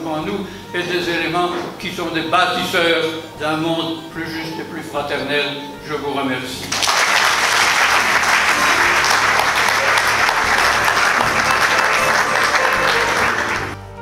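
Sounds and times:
background music: 0.0s - 14.0s
audience applauding: 6.7s - 14.0s.

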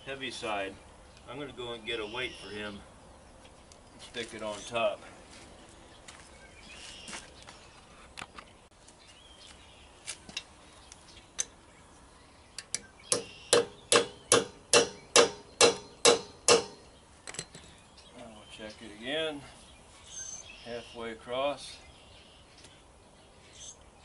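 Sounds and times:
hammer strikes on metal: 13.1s - 16.9s.

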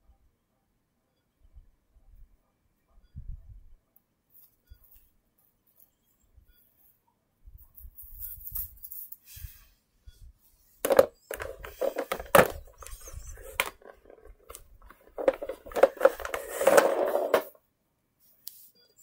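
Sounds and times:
plush toys rustling and bumping: 10.8s - 17.5s.

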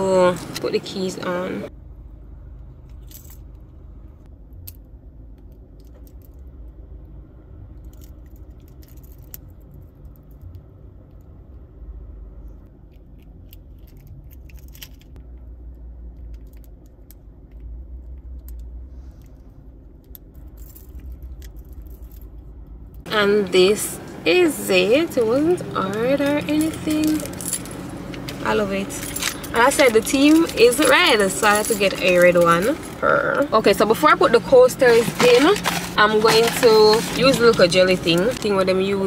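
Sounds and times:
low steady hum: 0.0s - 39.0s
small metal parts clicking: 7.8s - 10.6s, 12.9s - 15.2s, 16.1s - 19.3s, 19.9s - 23.0s, 25.4s - 33.0s.

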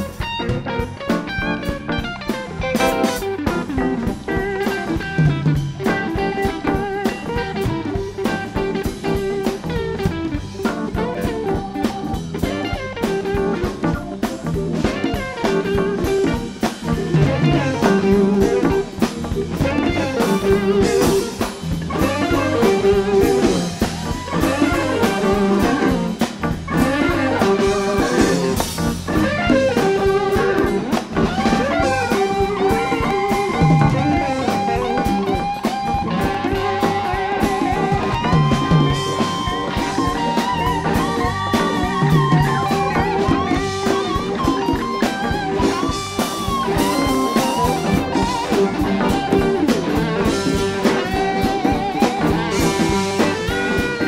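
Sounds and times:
bass guitar: 0.0s - 54.0s
drum kit: 0.0s - 54.0s
electric guitar solo: 0.0s - 54.0s.

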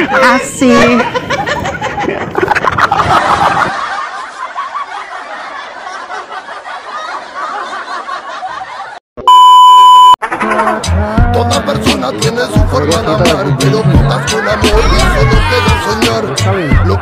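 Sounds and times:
women laughing and giggling: 0.8s - 9.0s, 14.0s - 17.0s
high test tone beep: 9.2s - 10.2s.

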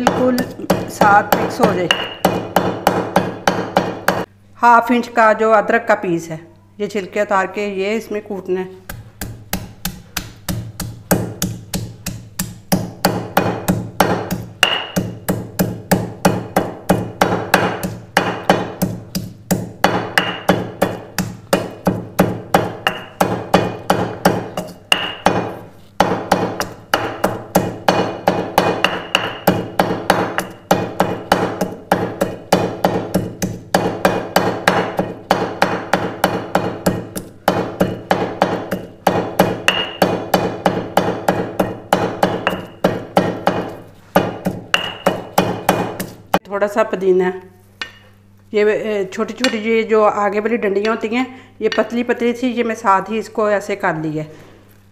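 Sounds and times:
pestle pounding in stone mortar: 0.0s - 4.3s, 8.8s - 46.5s.

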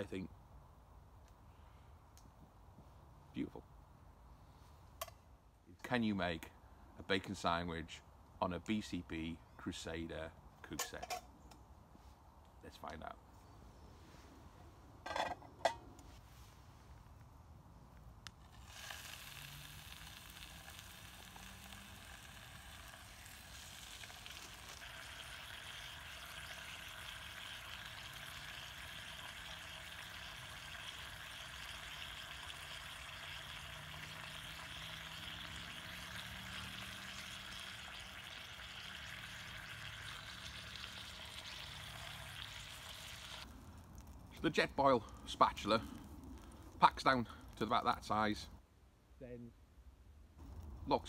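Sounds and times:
bacon sizzling in a frying pan: 18.4s - 43.5s.

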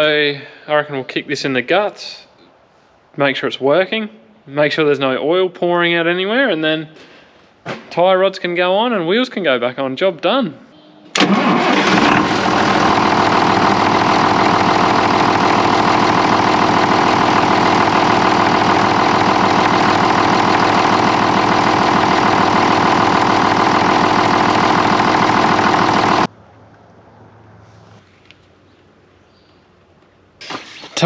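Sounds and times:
tractor diesel engine running: 11.2s - 26.3s.

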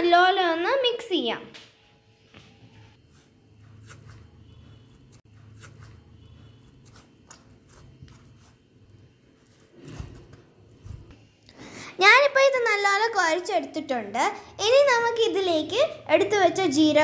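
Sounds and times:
dough squelching and crackling: 2.5s - 11.2s.

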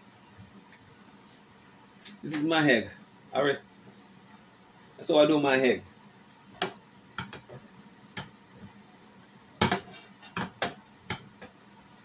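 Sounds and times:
utensil tapping and scraping pan: 9.6s - 11.6s.

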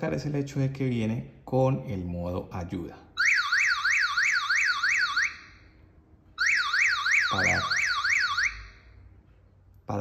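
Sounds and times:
sweeping siren alarm tone: 3.2s - 9.0s.

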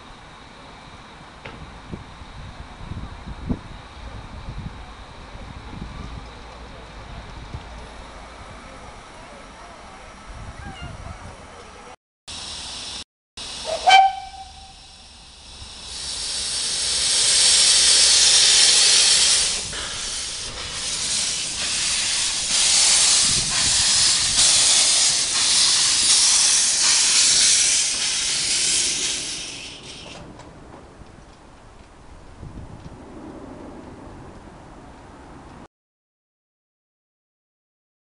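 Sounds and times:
pulsing steam hiss: 12.3s - 30.3s
steam locomotive whistle toot: 13.5s - 15.1s, 15.9s - 30.2s.

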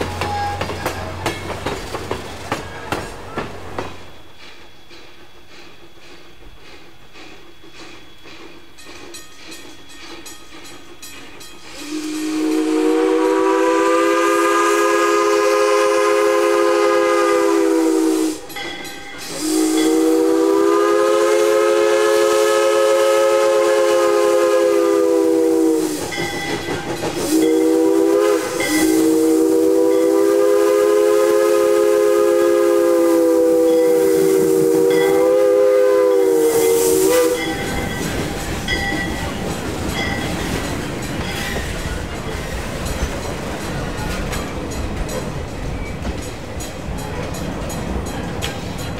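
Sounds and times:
steam locomotive whistle blasts: 0.0s - 1.4s, 11.7s - 26.2s, 27.2s - 39.4s
faint steam hiss: 0.0s - 48.9s.

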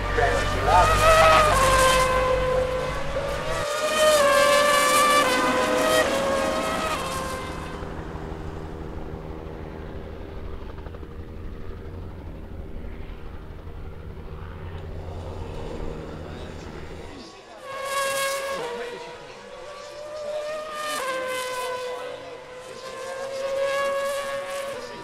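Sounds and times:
racing car passing: 0.0s - 8.2s, 15.0s - 25.0s
helicopter rumble: 0.0s - 17.7s, 22.0s - 25.0s.

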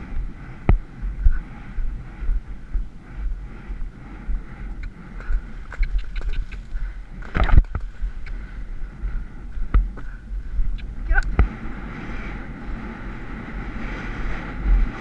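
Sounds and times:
wind buffeting camera: 0.0s - 15.0s
horse hoofbeats cantering: 4.8s - 8.2s.

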